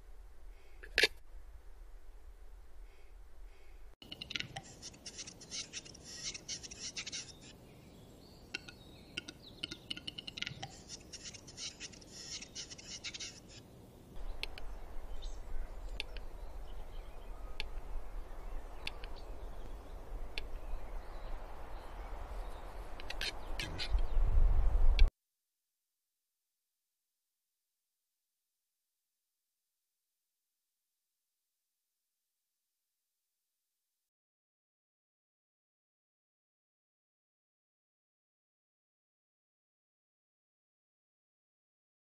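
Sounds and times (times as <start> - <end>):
bird dry clicking notes: 8.5 - 10.7.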